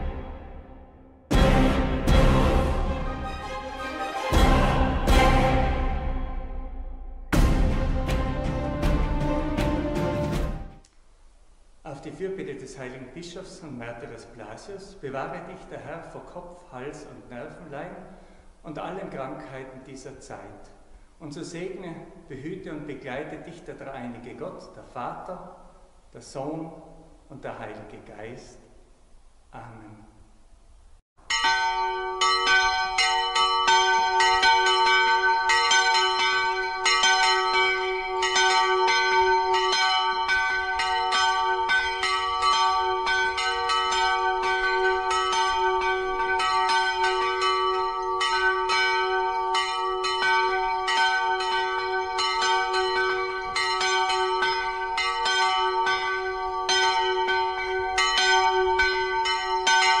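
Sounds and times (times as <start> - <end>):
church bells pealing: 31.3 - 60.0.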